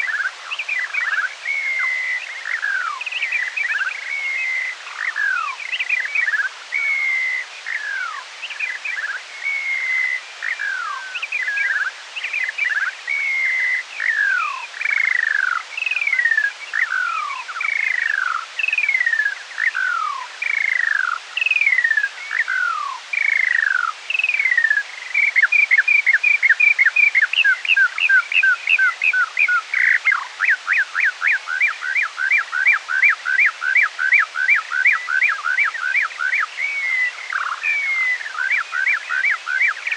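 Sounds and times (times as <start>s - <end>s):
slowed bird song: 0.0s - 39.9s.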